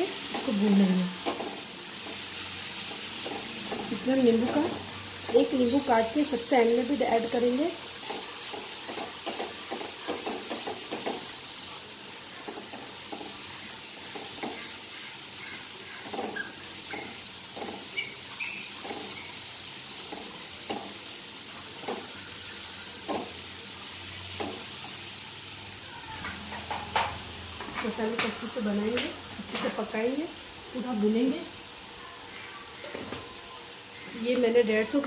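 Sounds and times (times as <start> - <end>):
masala sizzling in oil: 0.0 - 35.0
wooden spatula scraping pan: 14.0 - 21.0.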